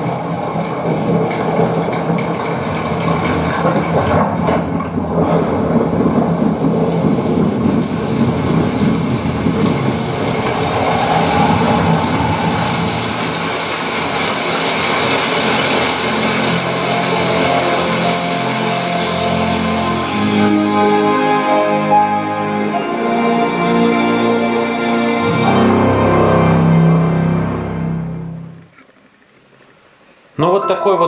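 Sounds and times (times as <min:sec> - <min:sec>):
storm rumble: 0:00.0 - 0:19.9
wind: 0:00.0 - 0:27.5, 0:28.4 - 0:30.8.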